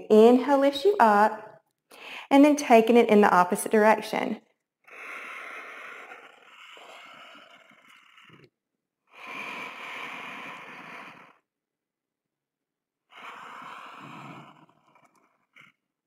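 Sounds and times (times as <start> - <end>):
person breathing deeply: 1.9 - 2.3, 9.1 - 11.4.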